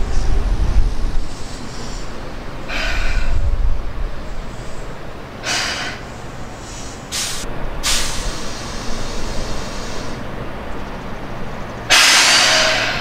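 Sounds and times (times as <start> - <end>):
air brake hisses: 0.0 - 3.4, 4.4 - 10.3, 11.9 - 13.0
electric train rumbling: 0.0 - 13.0.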